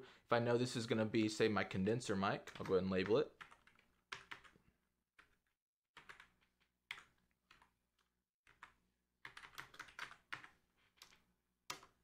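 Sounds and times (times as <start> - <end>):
keyboard typing: 2.4 - 12.0.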